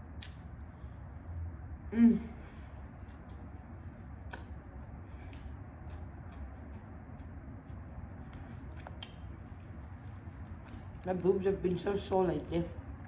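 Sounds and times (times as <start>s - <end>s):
low room hum: 0.0s - 13.0s
soft mouth clicks: 0.2s - 0.4s, 4.2s - 4.7s, 8.8s - 9.2s.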